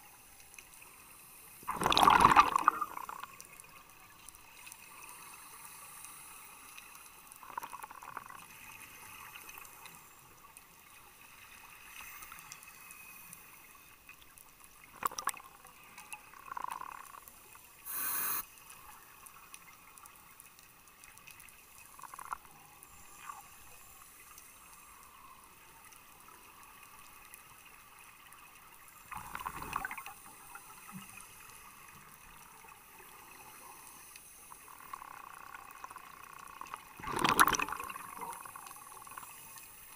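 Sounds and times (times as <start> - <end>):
steady underwater hiss: 0.0 - 39.9
bubbling bursts: 1.7 - 3.3, 29.1 - 30.1, 36.3 - 39.2.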